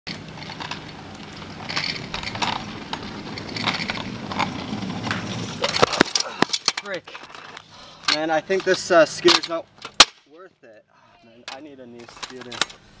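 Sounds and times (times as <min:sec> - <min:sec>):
kick scooter wheels rumbling: 0:00.1 - 0:09.5
scooter scraping: 0:00.1 - 0:09.6.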